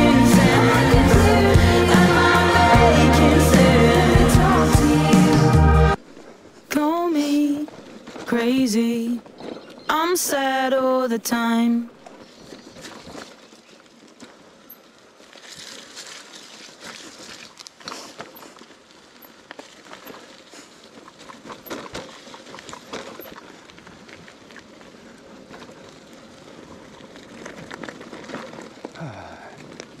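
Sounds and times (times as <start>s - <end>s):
bike rattling: 12.0s - 30.0s
tyres crunching over gravel: 12.1s - 30.0s.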